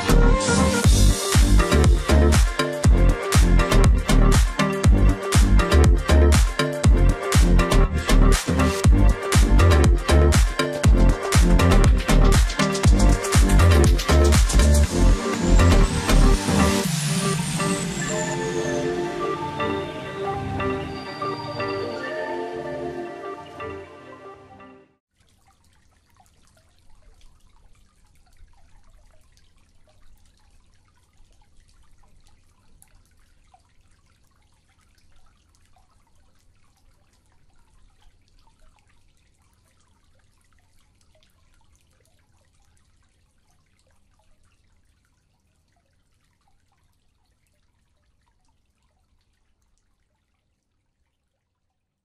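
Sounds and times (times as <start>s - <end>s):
water feature trickling and dripping: 25.1s - 52.0s.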